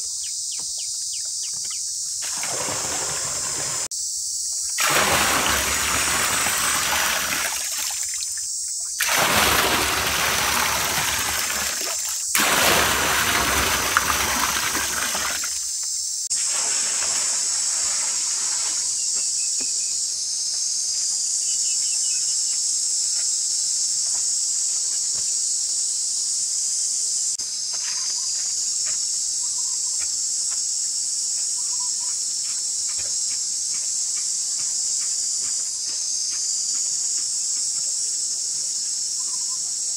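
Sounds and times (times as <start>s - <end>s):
high insect drone: 0.0s - 39.9s
water splashing into a pool: 2.2s - 3.9s, 4.8s - 18.9s.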